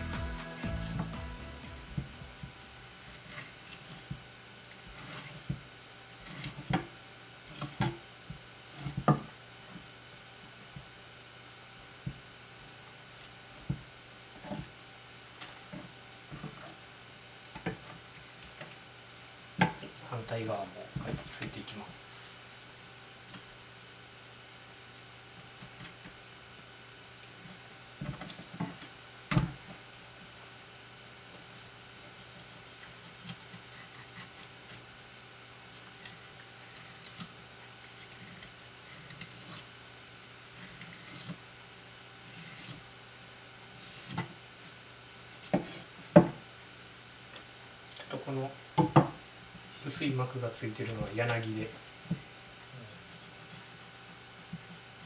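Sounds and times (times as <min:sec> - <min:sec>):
steady background hum: 0:00.0 - 0:55.0
knife scraping fish bones: 0:32.2 - 0:34.8.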